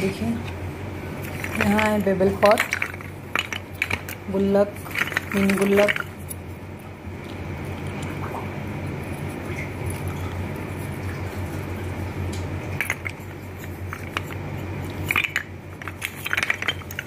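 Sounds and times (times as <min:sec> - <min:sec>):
clay pots clinking: 0:01.3 - 0:06.2, 0:12.8 - 0:17.0.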